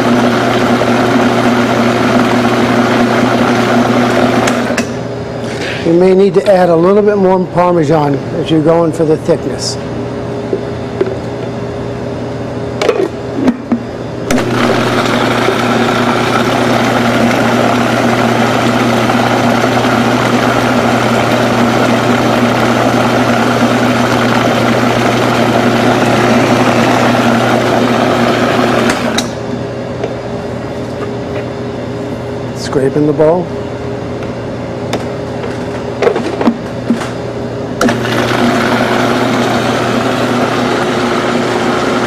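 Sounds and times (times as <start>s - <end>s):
food processor motor blending: 0.0s - 4.9s, 14.3s - 29.4s, 37.8s - 42.0s.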